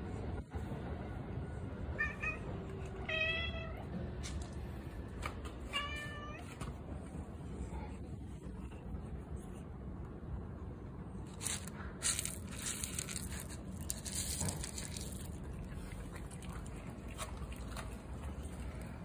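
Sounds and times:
cat kibble clattering: 11.3 - 18.8.

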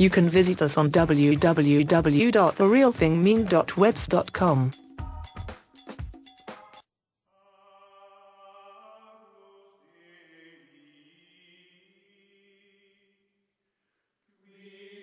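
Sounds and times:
faint choral chanting: 7.4 - 12.7, 14.4 - 15.0.

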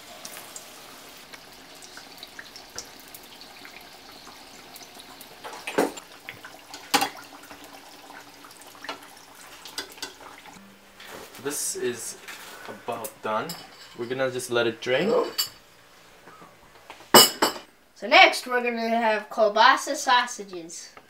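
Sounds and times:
hot oil sizzling: 0.0 - 14.3.

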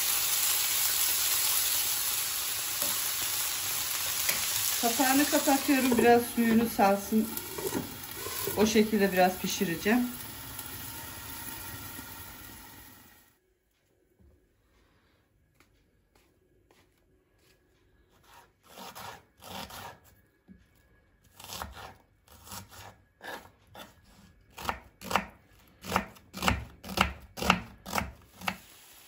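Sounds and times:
knife chopping onion on wooden board: 18.2 - 20.0, 21.4 - 28.7.

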